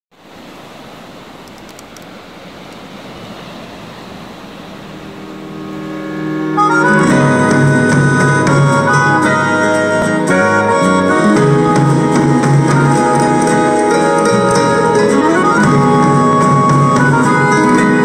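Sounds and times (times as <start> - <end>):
surf washing over rocks: 0.2 - 18.0
loud music with sustained chords: 4.9 - 18.0.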